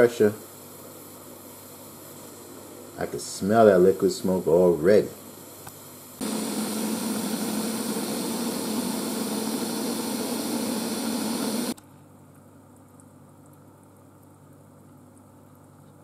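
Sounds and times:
pressure cooker steam hissing: 0.0 - 11.8.

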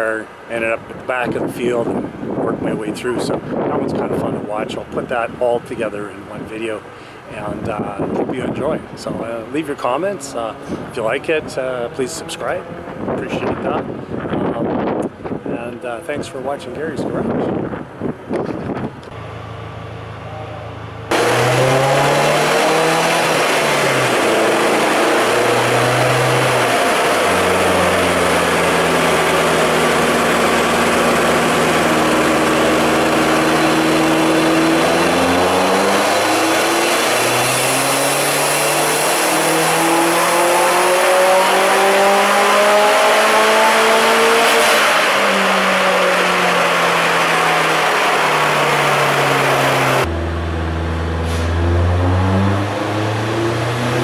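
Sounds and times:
race car engine revving on dyno: 9.0 - 15.1, 21.0 - 54.0.

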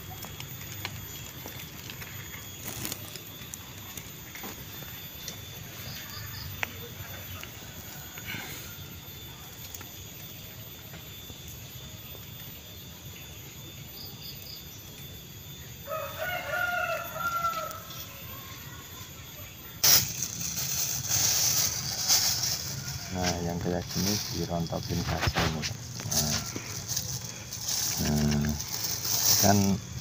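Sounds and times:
plastic bag rustling: 1.0 - 4.9, 19.8 - 30.0
rooster crowing: 7.2 - 9.0, 15.8 - 18.4, 21.6 - 23.3, 26.1 - 27.4.

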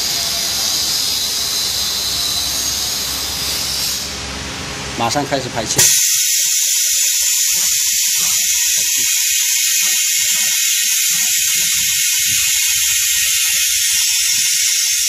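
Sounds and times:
compressed air hissing: 5.8 - 15.0.

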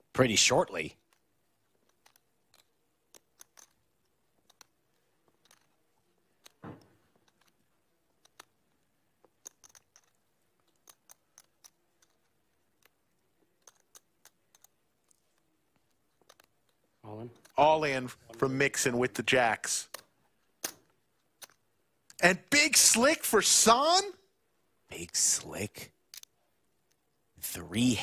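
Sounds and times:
poker chips clicking: 1.0 - 17.6, 19.9 - 22.2, 25.0 - 27.1.

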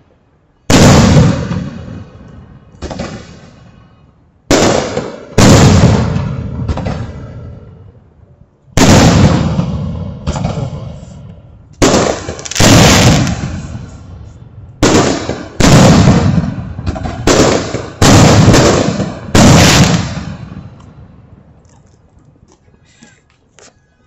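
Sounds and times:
fireworks bangs: 0.7 - 3.8, 4.5 - 7.7, 8.8 - 21.2.

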